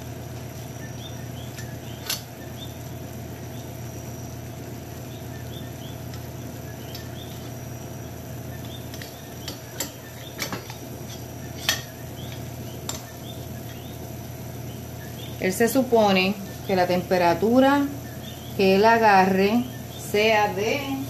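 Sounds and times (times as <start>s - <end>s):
steady low hum: 0.0s - 21.0s
faint high chirping: 0.6s - 10.4s, 11.2s - 17.0s, 17.8s - 21.0s
thermometer clip clicking on pot: 1.5s - 2.4s, 8.6s - 13.1s.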